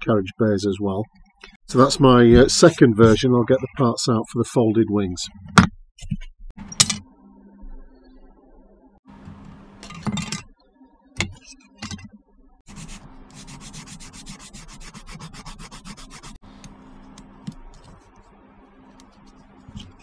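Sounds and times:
sanding stick rubbing plastic: 12.7s - 16.4s.

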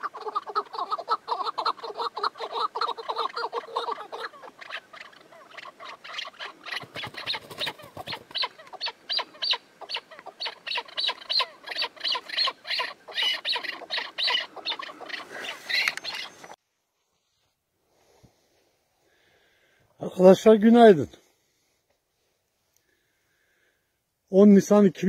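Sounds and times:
partridge clucking calls: 0.0s - 16.6s.

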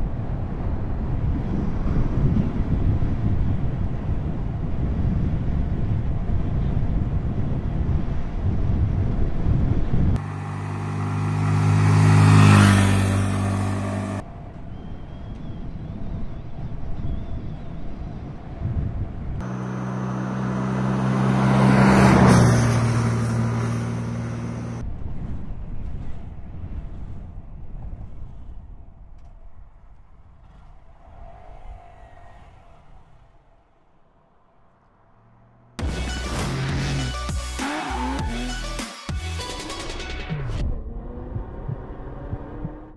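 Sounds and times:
wind buffeting microphone: 0.0s - 10.2s, 11.2s - 35.7s, 40.6s - 42.9s
motorcycle engine at low speed: 0.0s - 30.8s, 40.4s - 42.9s
motorcycle engine passing by: 10.2s - 14.2s, 19.4s - 24.8s.

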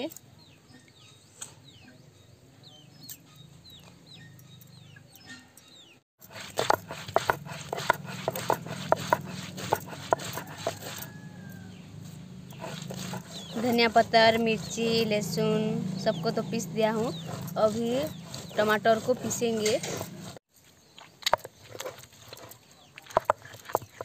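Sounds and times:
stone roller knocking and scraping: 6.2s - 11.2s, 12.5s - 20.4s, 21.3s - 24.0s.

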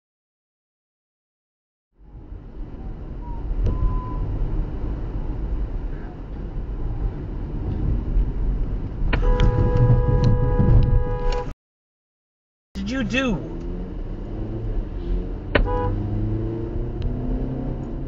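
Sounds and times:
car road and engine rumble: 2.0s - 11.5s, 12.8s - 18.0s
vehicle horn blast: 9.2s - 11.5s, 15.6s - 16.0s.

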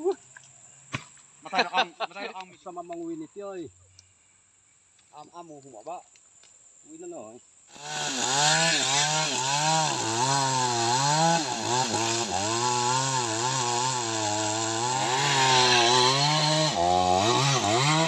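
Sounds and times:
chainsaw cutting tree trunk: 7.7s - 18.0s.

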